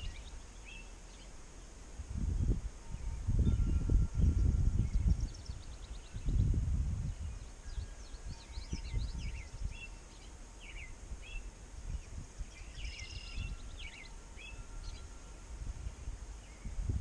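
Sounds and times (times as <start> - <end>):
small birds chirping: 0.0 - 1.8, 4.2 - 15.2
wind buffeting microphone: 2.0 - 10.0, 10.7 - 17.0.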